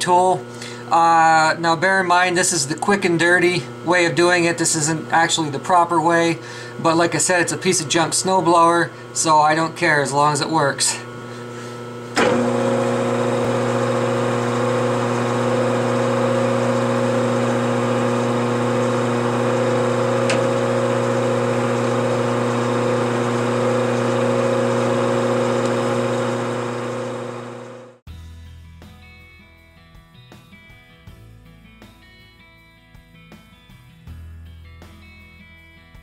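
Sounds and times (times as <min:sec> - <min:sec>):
metal lathe running: 0:11.9 - 0:28.0.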